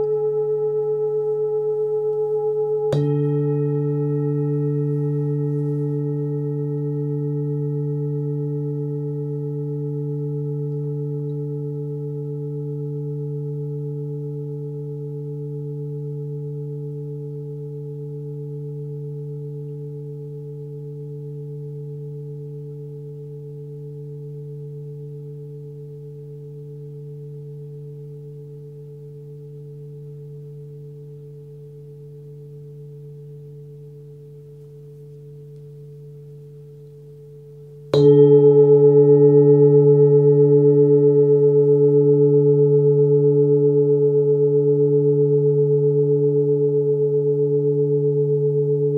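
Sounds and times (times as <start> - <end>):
singing bowl ringing: 0.0 - 48.9.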